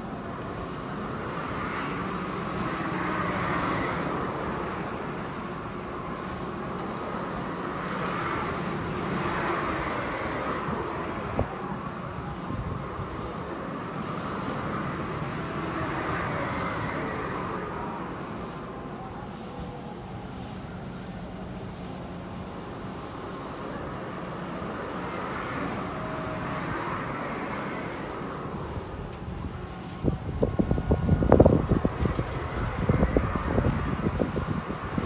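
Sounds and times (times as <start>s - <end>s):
mechanical din of carnival rides: 0.0s - 35.0s.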